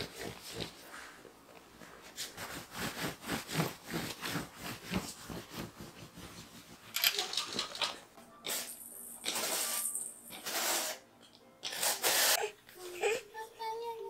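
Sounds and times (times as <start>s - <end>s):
hands rustling and patting fabric: 1.6s - 6.9s.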